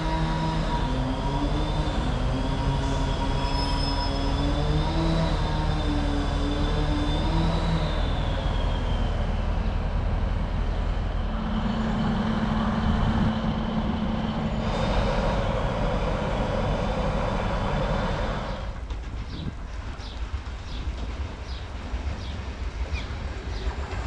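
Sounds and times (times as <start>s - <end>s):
diesel train engine rumbling: 0.0s - 24.0s
wheels squealing: 2.8s - 9.8s.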